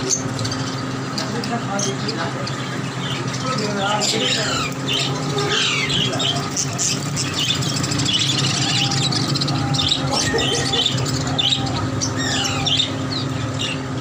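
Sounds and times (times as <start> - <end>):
budgerigars chirping and squawking: 0.0 - 14.0
steady low hum: 0.0 - 14.0.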